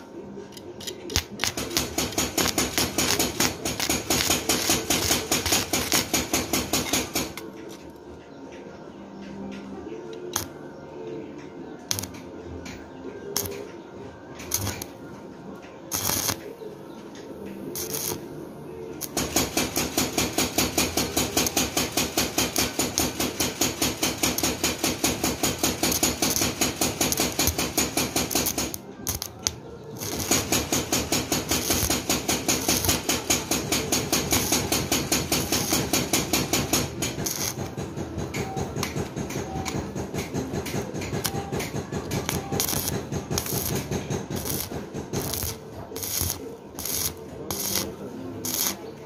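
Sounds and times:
welding arc crackling: 1.2s - 7.4s, 11.9s - 12.2s, 14.5s - 14.9s, 15.9s - 16.4s, 17.8s - 18.2s, 19.0s - 37.7s, 42.1s - 48.8s.

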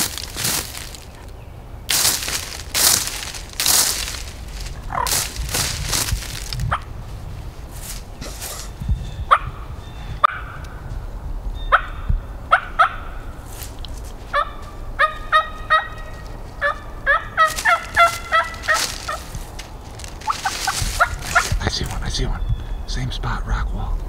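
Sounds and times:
turkey gobbling: 1.9s - 5.7s, 11.7s - 13.3s, 14.3s - 22.4s.

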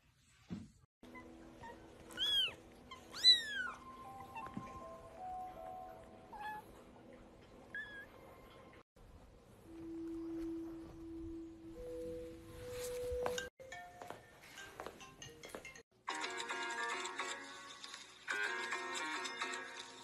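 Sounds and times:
cat meowing: 1.1s - 4.8s, 6.3s - 6.8s
soft background music: 1.1s - 20.0s.

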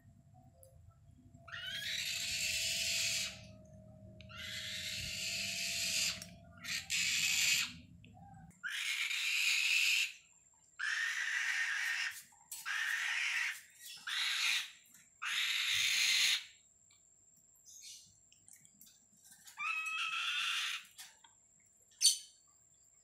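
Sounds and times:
hawk screeching: 1.5s - 3.5s, 4.3s - 7.8s.

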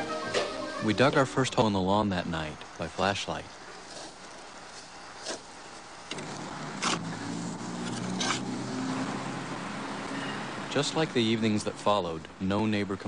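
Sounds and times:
steady low hum: 0.0s - 8.7s
shovel scraping into soil: 3.8s - 5.5s, 6.1s - 7.1s, 7.8s - 8.5s.

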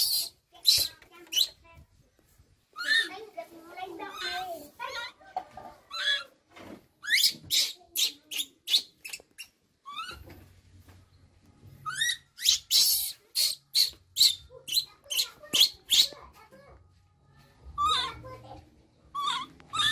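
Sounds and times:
baby monkey screaming: 0.0s - 1.6s, 2.8s - 3.1s, 5.9s - 6.3s, 7.0s - 10.2s, 11.8s - 16.2s, 17.8s - 18.2s, 19.1s - 19.9s.

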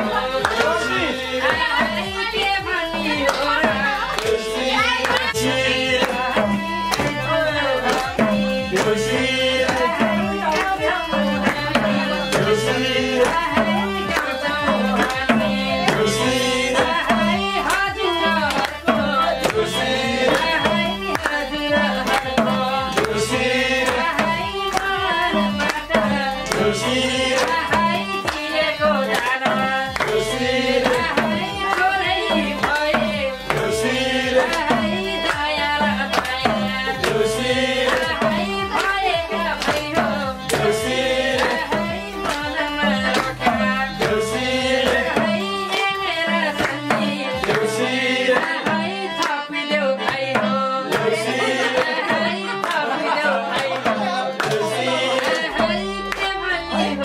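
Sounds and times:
hand drum beating: 0.0s - 49.3s, 50.1s - 53.0s
electronic keyboard: 0.0s - 57.0s
group singing: 0.0s - 57.0s.

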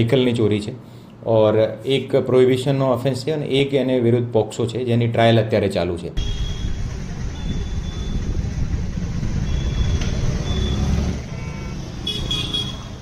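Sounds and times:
road traffic rumble: 6.2s - 13.0s.

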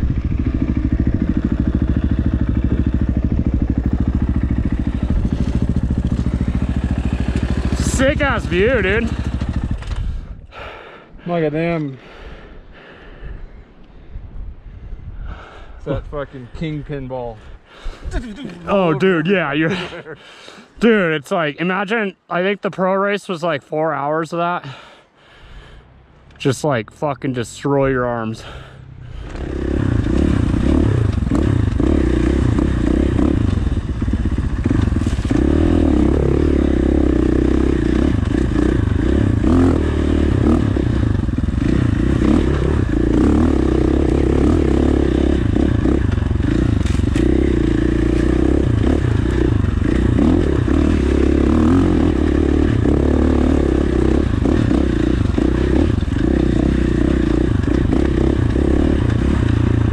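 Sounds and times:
dirt bike engine revving: 0.0s - 10.1s, 28.4s - 59.9s.

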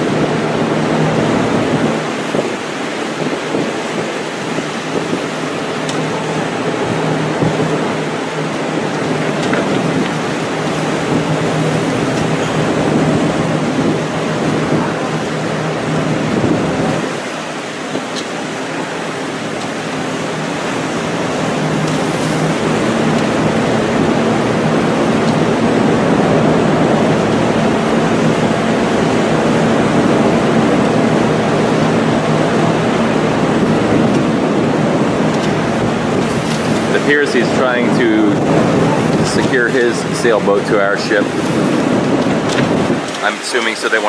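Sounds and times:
rough sea washing against hulls: 0.0s - 44.0s
wind buffeting the microphone: 0.0s - 44.0s.

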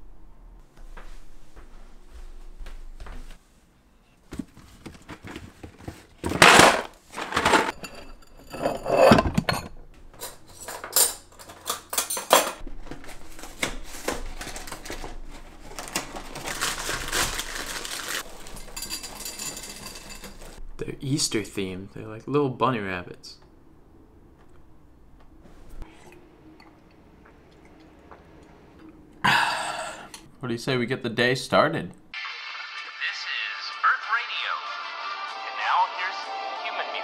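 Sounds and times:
cutlery clinking in a drawer: 6.3s - 12.6s, 18.4s - 20.6s
dishes clattering: 6.3s - 12.6s, 18.3s - 20.6s.

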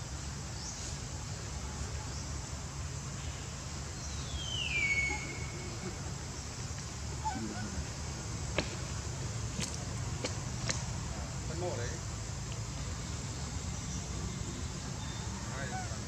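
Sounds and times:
low background hum: 0.0s - 16.0s
high whistle-like animal call: 4.4s - 5.6s.

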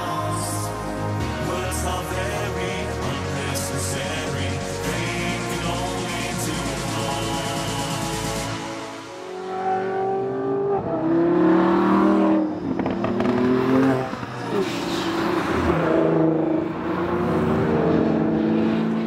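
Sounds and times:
car engines accelerating past: 9.3s - 19.0s.

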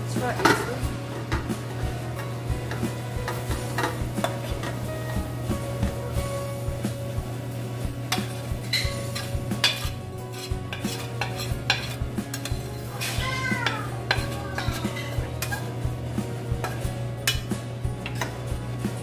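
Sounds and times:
fork scraping a metal pan: 8.1s - 15.8s, 16.6s - 18.4s.

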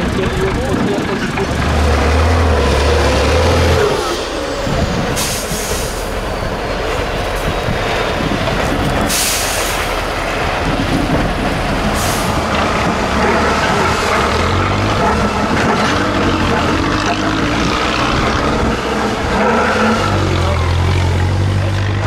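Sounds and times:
truck diesel engine under load: 0.0s - 22.0s
short sharp hisses: 5.2s - 6.1s, 9.1s - 9.8s.

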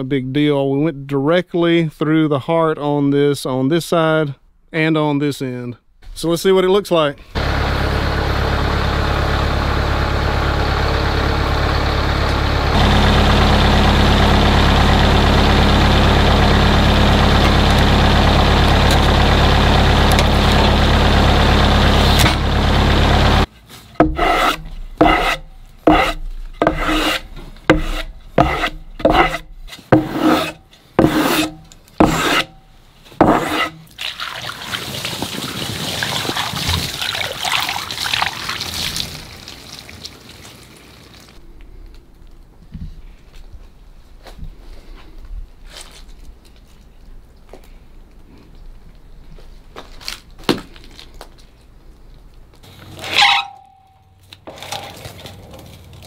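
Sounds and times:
small engine running: 7.4s - 23.5s
hand brush sweeping wood: 23.7s - 32.5s, 33.2s - 33.8s
water pouring onto wood: 33.9s - 41.4s.

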